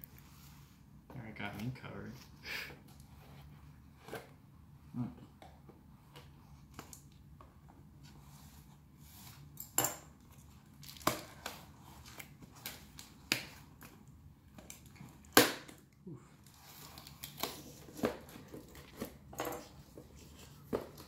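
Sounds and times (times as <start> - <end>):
tape crackles: 10.3 - 21.0.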